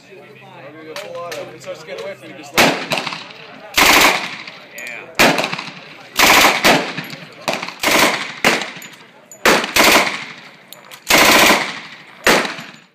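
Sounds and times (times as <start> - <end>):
pistol shots: 2.6 - 12.9.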